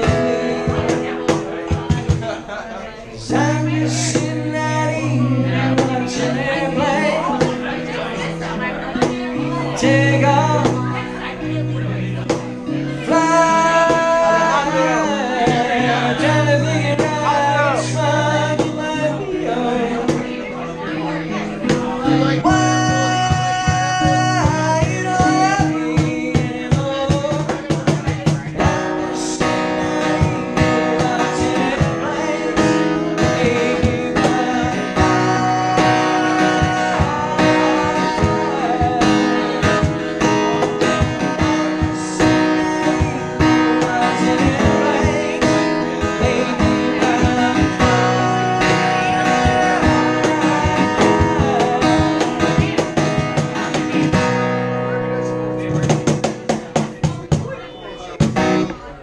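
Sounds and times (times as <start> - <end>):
cajon tapping: 0.0 - 2.4, 9.0 - 11.0, 12.2 - 19.1, 20.0 - 20.4, 21.6 - 54.5, 55.6 - 57.6, 58.2 - 58.8
acoustic guitar strumming: 0.0 - 59.0
man singing: 0.0 - 59.0.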